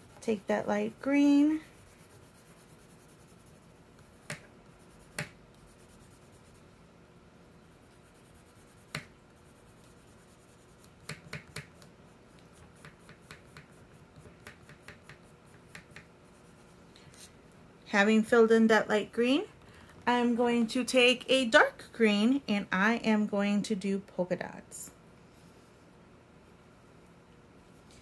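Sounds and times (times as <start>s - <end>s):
crayon scratchy strokes: 0.0s - 6.7s, 7.6s - 17.3s
crayon ticks on paper: 10.8s - 11.9s, 12.8s - 16.1s.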